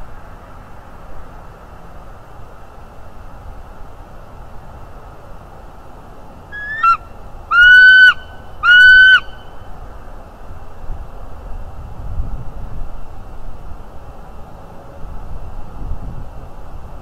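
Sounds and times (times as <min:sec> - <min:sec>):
bald eagle calling: 0:06.5 - 0:09.5.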